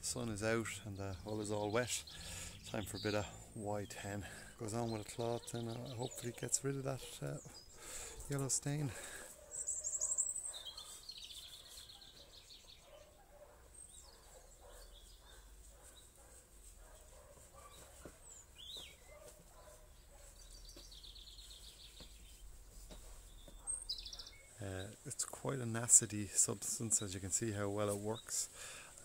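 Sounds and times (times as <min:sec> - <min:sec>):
faint outdoor background noise: 0:00.0 - 0:29.0
songbird high trill: 0:09.6 - 0:12.7.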